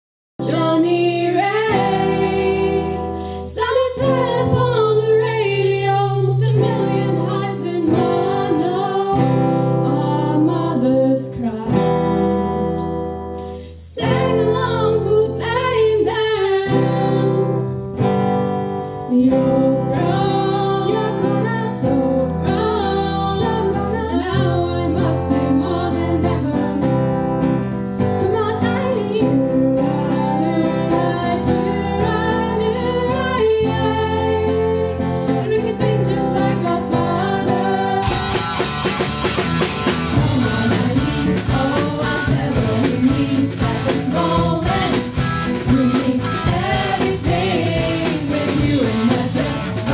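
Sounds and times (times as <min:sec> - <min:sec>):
women singing together: 0:00.4 - 0:12.8, 0:13.8 - 0:17.7, 0:19.1 - 0:26.9, 0:28.2 - 0:38.2, 0:40.2 - 0:49.9
strummed acoustic guitar: 0:16.6 - 0:49.9.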